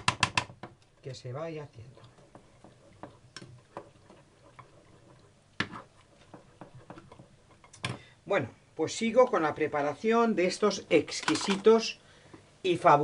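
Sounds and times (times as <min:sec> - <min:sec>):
utensil tapping and scraping bowl: 0:00.0 - 0:08.0.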